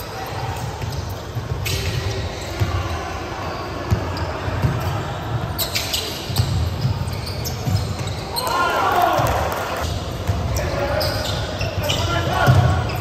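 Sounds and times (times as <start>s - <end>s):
sports hall background: 0.0s - 13.0s.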